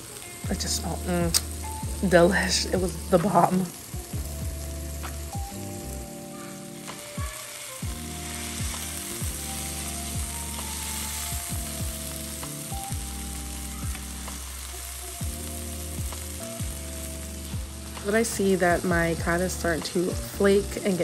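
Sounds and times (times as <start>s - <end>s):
background music with bass and beat: 0.0s - 20.7s
fish sizzling in a pan: 0.0s - 21.0s.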